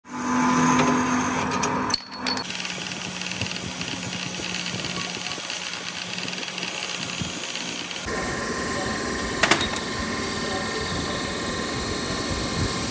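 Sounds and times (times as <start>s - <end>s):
metal polished on buffing wheel: 2.4s - 8.1s
buffing wheel humming: 2.4s - 9.3s.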